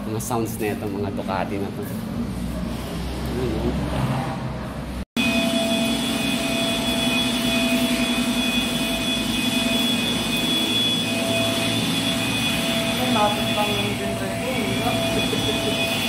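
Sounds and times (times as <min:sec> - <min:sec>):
machine drone with whine: 0:05.2 - 0:16.0.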